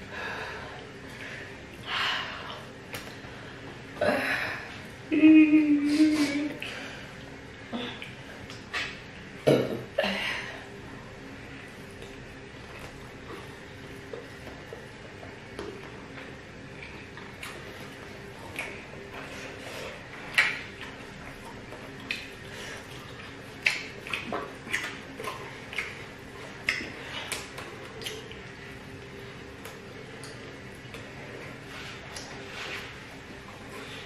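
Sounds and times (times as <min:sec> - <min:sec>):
faint steady hum: 0:00.0 - 0:34.0
mouth smacks while eating: 0:07.9 - 0:09.0, 0:16.8 - 0:19.0, 0:19.9 - 0:28.6, 0:32.0 - 0:33.0.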